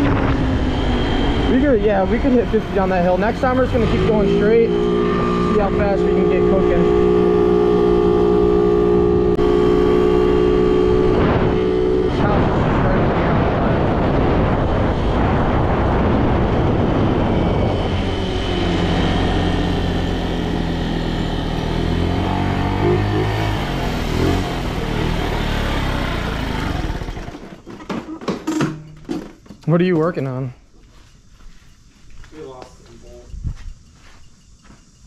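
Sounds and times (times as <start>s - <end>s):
moped engine running: 0.0s - 27.8s
wind on microphone: 10.6s - 20.2s, 33.1s - 33.8s.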